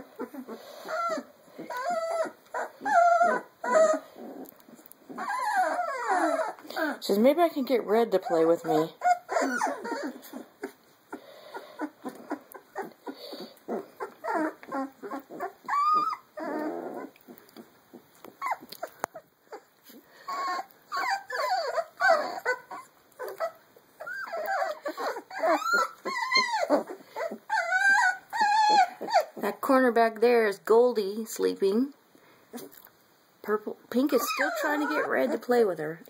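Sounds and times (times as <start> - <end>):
puppy growl: 0.0 - 7.0, 7.6 - 29.6, 32.5 - 32.9, 33.9 - 35.7
puppies whimpering and squealing: 0.0 - 29.8, 33.9 - 35.9.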